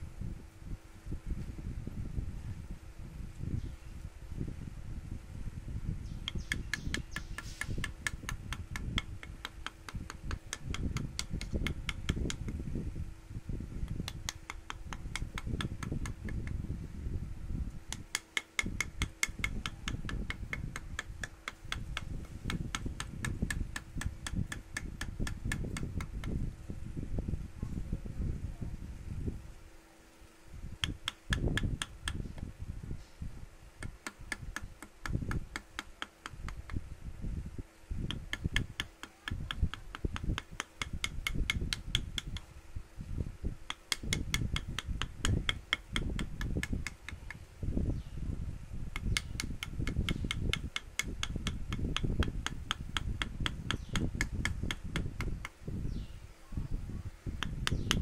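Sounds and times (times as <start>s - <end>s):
low rumbling: 0.0s - 29.7s
steady low hum: 0.0s - 58.0s
rapid sharp tapping: 6.2s - 12.6s, 13.8s - 16.6s, 17.9s - 26.4s, 30.8s - 32.5s, 33.8s - 36.8s, 38.0s - 42.5s, 43.7s - 47.5s, 48.9s - 55.6s, 57.4s - 58.0s.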